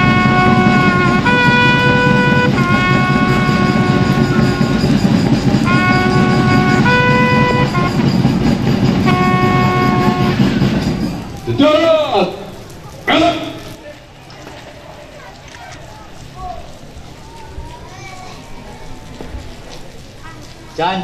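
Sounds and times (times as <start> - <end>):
continuous drumming: 0.0 - 13.8
wind instruments holding long notes: 0.0 - 13.8.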